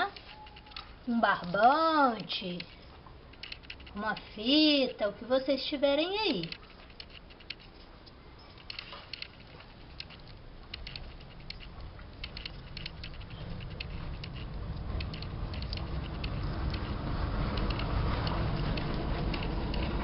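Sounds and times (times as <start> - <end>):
low rumble: 11.3 - 20.0.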